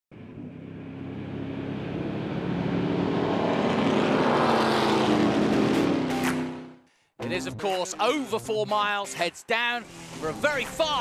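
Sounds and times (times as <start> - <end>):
race car engines at high revs: 0.2 - 6.8.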